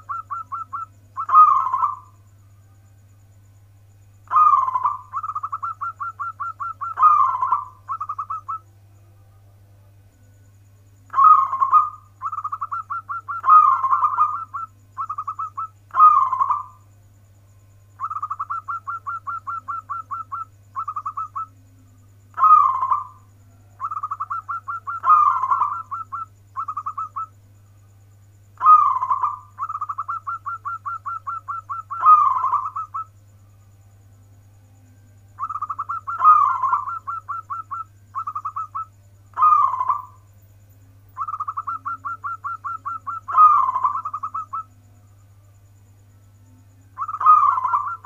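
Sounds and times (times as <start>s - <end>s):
dove cooing: 0.0s - 2.2s, 4.2s - 8.6s, 11.1s - 16.8s, 18.0s - 21.6s, 22.3s - 27.4s, 28.6s - 33.1s, 35.4s - 40.3s, 41.2s - 44.8s, 46.9s - 48.0s
steady low hum: 0.0s - 48.0s.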